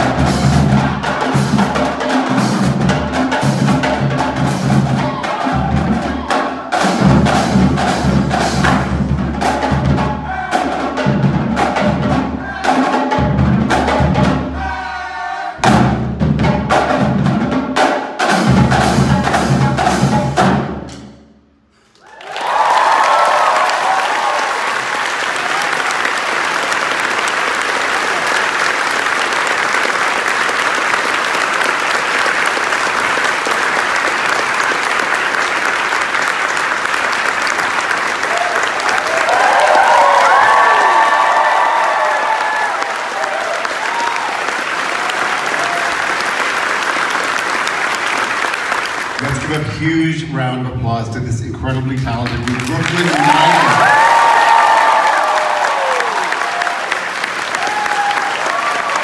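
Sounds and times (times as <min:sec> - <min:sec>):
marching drumline playing: 0:00.0 - 0:21.3, 0:30.8 - 0:50.6, 0:51.4 - 0:56.6
audience applause: 0:22.0 - 0:50.1, 0:51.7 - 0:59.0
person whooping: 0:53.0 - 0:56.9, 0:57.5 - 0:59.0.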